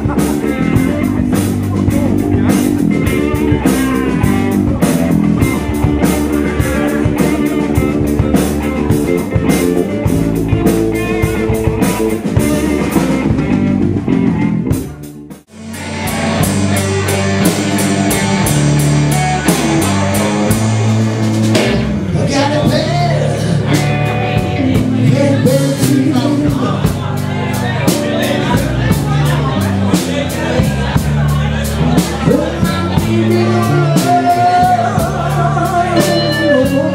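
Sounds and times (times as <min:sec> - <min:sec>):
live rock band playing: 0:00.0 - 0:36.9
person singing: 0:22.0 - 0:36.9.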